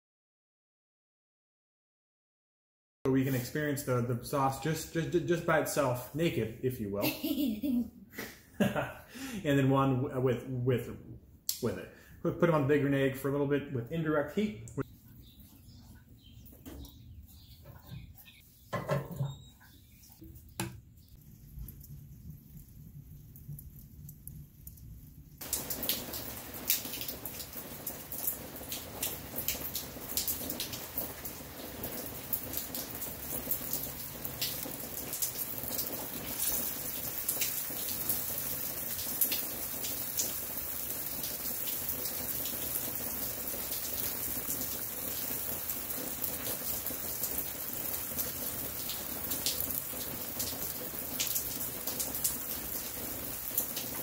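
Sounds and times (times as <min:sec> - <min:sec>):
meat and charcoal sizzling on grill: 0:34.2 - 0:42.6.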